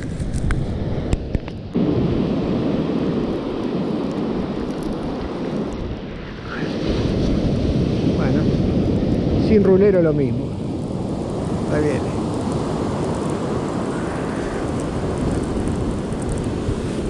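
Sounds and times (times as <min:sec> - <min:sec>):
wind buffeting microphone: 0:00.0 - 0:17.0
surf breaking: 0:01.8 - 0:17.0.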